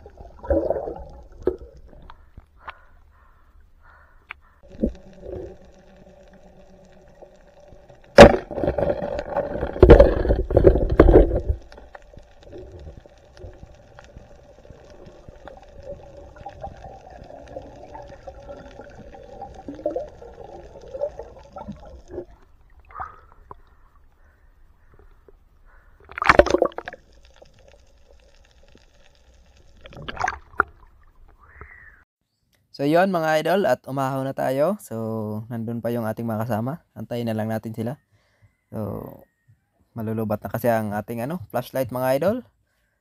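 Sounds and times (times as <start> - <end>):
underwater rumbling and knocking: 0.0 - 31.7
faint steady hum: 0.0 - 32.0
water movement: 0.0 - 32.0
underwater sharp crack: 4.2 - 18.8, 20.9 - 28.9.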